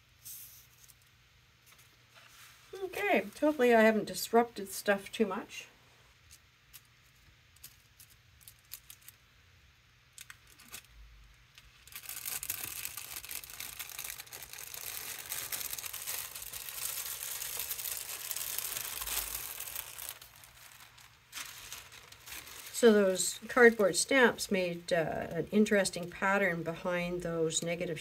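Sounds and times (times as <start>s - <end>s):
tissue paper peeling and crinkling: 1.7s - 4.0s, 6.7s - 9.2s, 10.2s - 10.9s, 11.6s - 24.0s.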